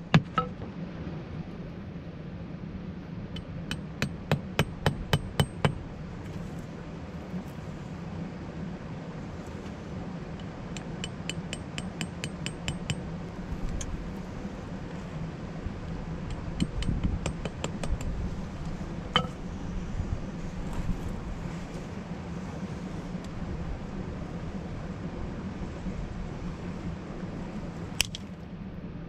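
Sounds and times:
steady low rumble: 0.0s - 29.0s
hatchet tapping wooden stake: 0.1s - 0.6s, 3.4s - 5.8s, 10.7s - 13.1s, 16.3s - 18.2s
sharp ringing knock: 19.2s - 19.4s.

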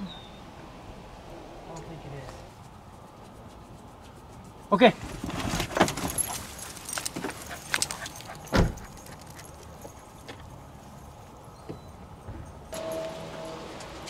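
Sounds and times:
jingling clicks: 5.9s - 10.6s
dull thump: 8.5s - 8.9s.

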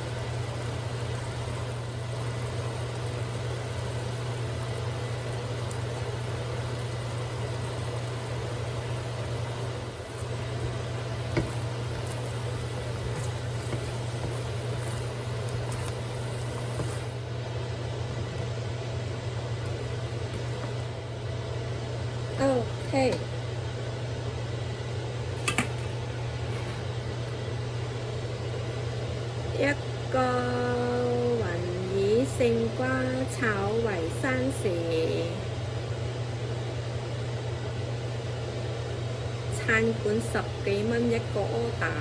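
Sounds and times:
kitchen fan humming: 0.0s - 42.0s
wooden spatula knocking on wok: 11.3s - 11.7s.

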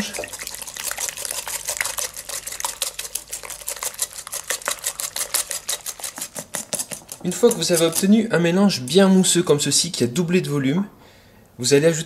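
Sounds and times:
whisk clicking against glass bowl: 0.0s - 8.1s.

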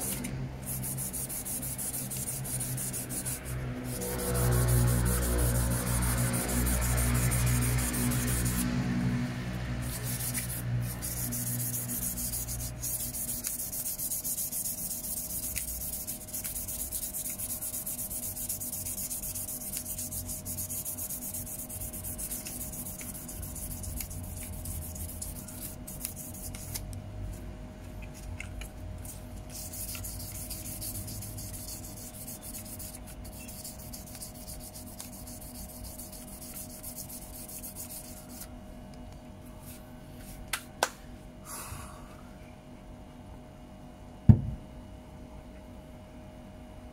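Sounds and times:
sandpaper rubbing on plastic: 0.0s - 9.0s, 9.8s - 26.8s, 29.0s - 38.5s.

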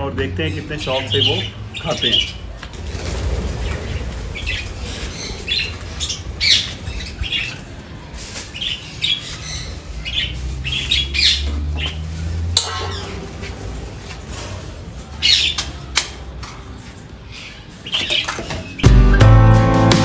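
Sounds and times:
budgerigars chattering: 0.4s - 2.4s.

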